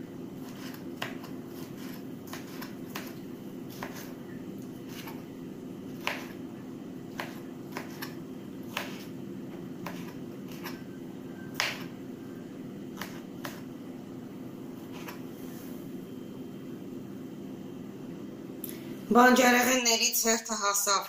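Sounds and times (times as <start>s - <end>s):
steady low hum: 0.0s - 21.0s
knife chopping on plastic board: 0.4s - 4.2s, 4.8s - 5.2s, 5.9s - 6.4s, 7.1s - 9.1s, 9.8s - 10.8s, 11.5s - 11.9s, 13.0s - 13.7s, 14.9s - 15.2s.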